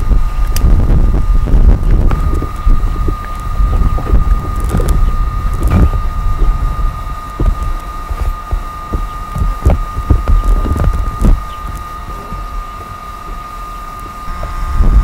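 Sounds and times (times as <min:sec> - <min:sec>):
wind buffeting microphone: 0:00.0 - 0:15.0
dull bumps: 0:00.6 - 0:13.4.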